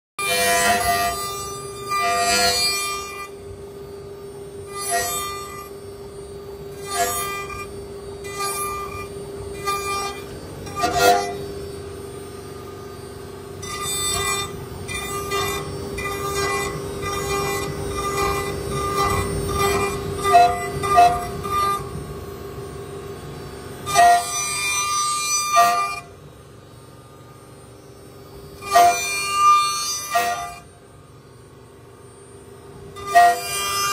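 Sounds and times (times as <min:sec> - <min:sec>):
router spindle running: 0:00.2 - 0:33.9
bit cutting into wood: 0:06.8 - 0:11.5.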